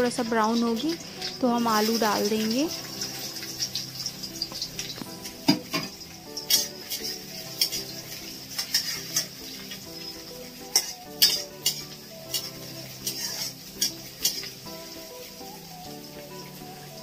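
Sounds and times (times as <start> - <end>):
onion sizzling in oil: 0.0 - 17.0
soft background music: 0.0 - 17.0
spatula scraping pan: 0.4 - 15.5.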